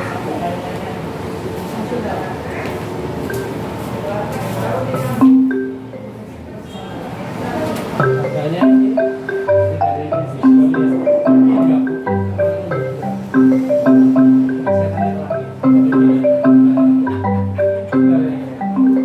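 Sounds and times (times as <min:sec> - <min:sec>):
keyboard playing mallet-like notes: 0:03.2 - 0:03.9, 0:04.8 - 0:06.6, 0:07.9 - 0:19.0.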